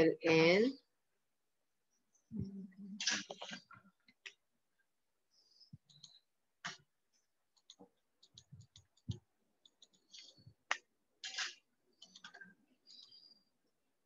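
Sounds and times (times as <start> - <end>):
computer mouse clicking: 5.8 - 6.9, 7.5 - 13.4.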